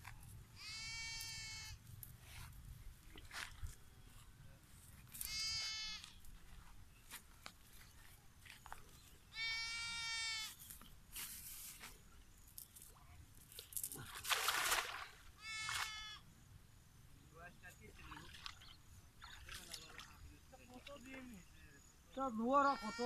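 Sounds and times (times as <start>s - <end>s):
cast net splashing into pond: 13.5s - 16.0s, 18.0s - 20.2s
animal crying: 22.6s - 23.0s.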